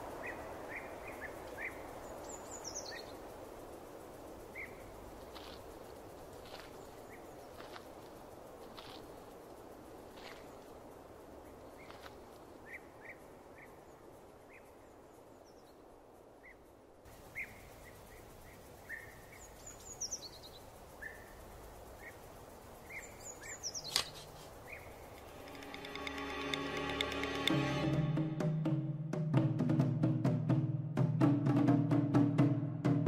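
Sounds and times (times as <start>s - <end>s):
birds chirping: 0.0s - 28.2s
background hiss: 0.0s - 33.0s
sharp click: 23.8s - 24.3s.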